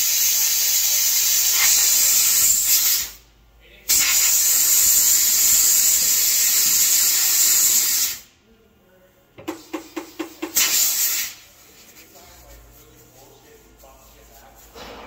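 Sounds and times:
compressed air hissing: 0.0 - 3.2, 3.9 - 8.3, 9.5 - 12.0.

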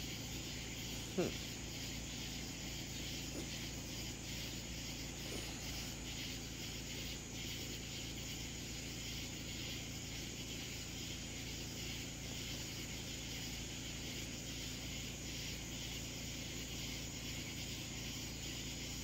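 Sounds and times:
insects chirring: 0.0 - 19.0
low steady hum: 0.0 - 19.0.

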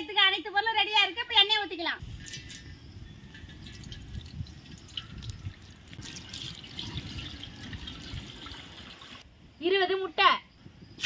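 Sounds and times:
water dripping and trickling: 2.0 - 9.2
small water splashes: 3.4 - 9.2.

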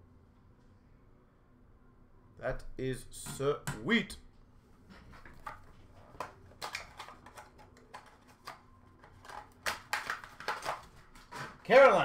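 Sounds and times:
trading cards and packaging handled: 5.0 - 12.0.

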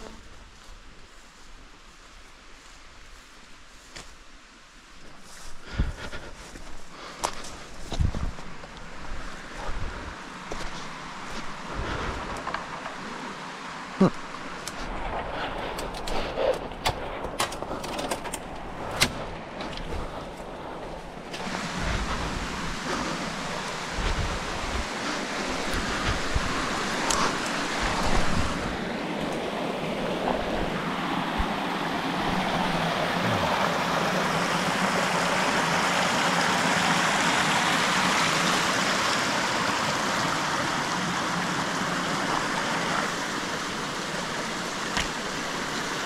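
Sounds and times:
rustling through brush: 0.0 - 33.6
stream rushing over rocks: 5.8 - 46.0.

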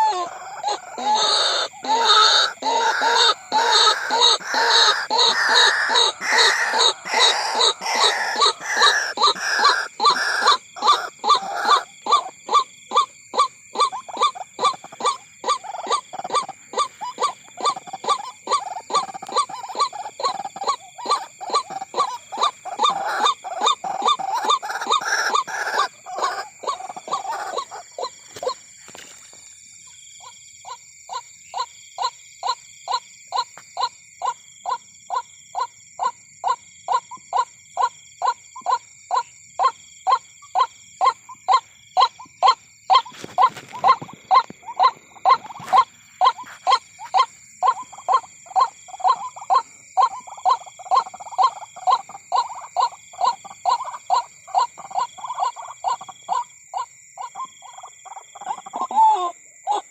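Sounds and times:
waterhens calling: 0.0 - 28.6, 42.9 - 59.9.

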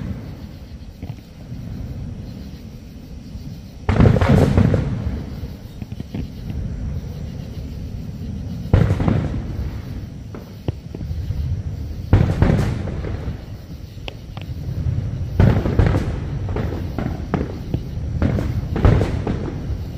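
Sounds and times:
fireworks booming with rumbling echo: 0.0 - 19.9
small firework pops: 3.8 - 6.6, 8.7 - 11.2, 12.1 - 14.6, 15.4 - 19.9.

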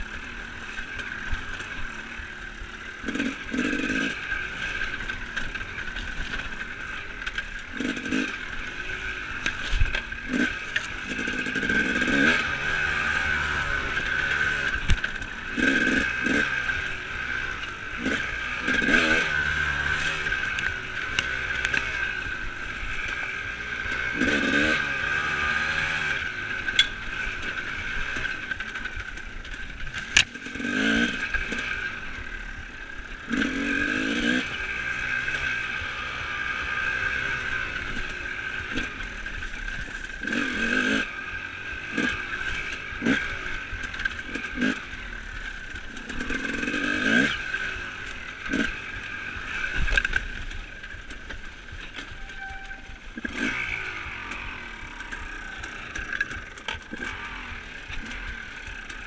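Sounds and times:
dirt bike engine revving: 0.0 - 59.0
bike scraping and clattering: 41.9 - 59.0.

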